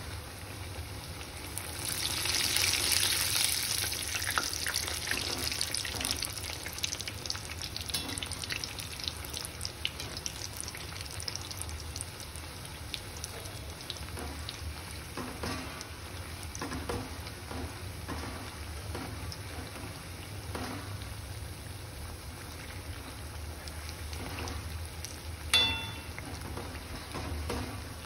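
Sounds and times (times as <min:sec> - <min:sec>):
dough deep-frying in hot oil: 0:00.0 - 0:28.0
oil crackling and popping: 0:01.6 - 0:17.1.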